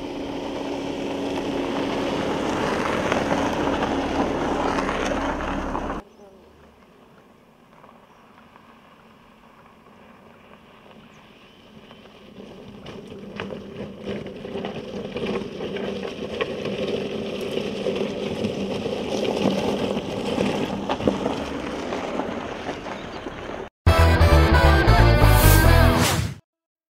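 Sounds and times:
car engine running: 0.0 - 6.0
tyres crackling on gravel: 0.0 - 23.7.

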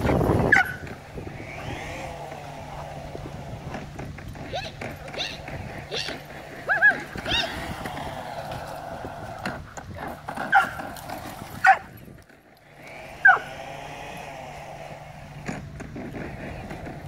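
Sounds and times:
steady low hum: 0.0 - 17.0
puppy yipping and barking: 4.5 - 7.5.

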